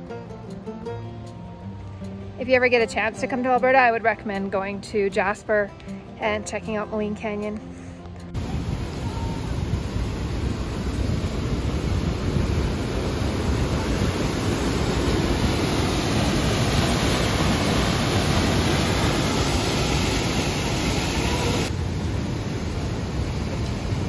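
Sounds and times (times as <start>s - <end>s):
whitewater rushing in canyon: 8.4s - 24.0s.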